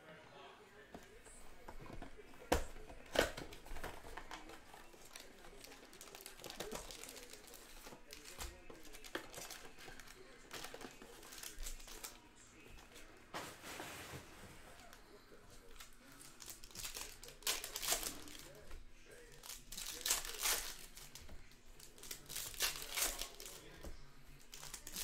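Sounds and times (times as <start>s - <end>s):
card pack wrappers tearing and crinkling: 2.0s - 12.2s, 15.6s - 21.2s, 21.8s - 25.0s.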